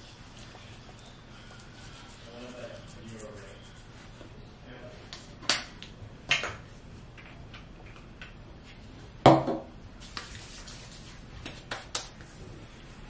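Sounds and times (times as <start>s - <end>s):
hands rubbing together: 0.0s - 4.2s, 10.0s - 13.0s.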